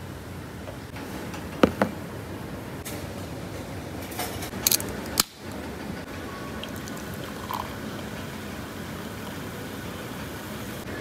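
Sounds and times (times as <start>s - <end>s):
steady background hiss: 0.0s - 11.0s
cola pouring and fizzing: 6.4s - 10.0s.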